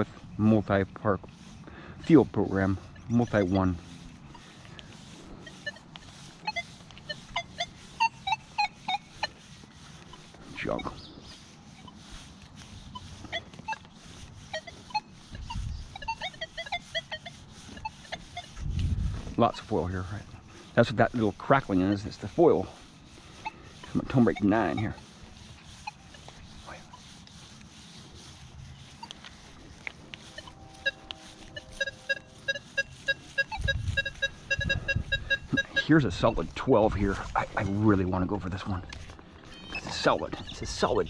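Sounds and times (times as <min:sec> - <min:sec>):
metal detector crackles: 0:00.0 - 0:41.0
metal detector short chirps: 0:14.5 - 0:18.6, 0:30.3 - 0:36.4, 0:38.8 - 0:40.8.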